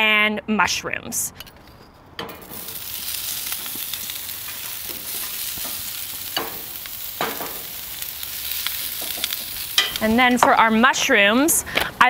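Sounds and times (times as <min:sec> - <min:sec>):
onions sizzling on griddle: 0:02.4 - 0:11.6
metal tongs clinking: 0:03.5 - 0:07.7, 0:08.6 - 0:10.5.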